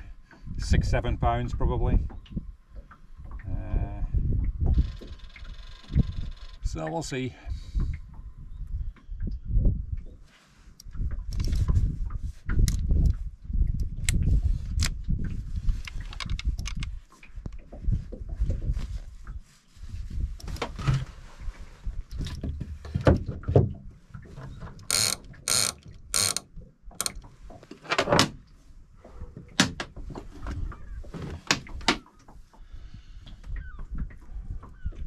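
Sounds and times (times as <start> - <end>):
fishing reel ratcheting: 24.9 - 26.4.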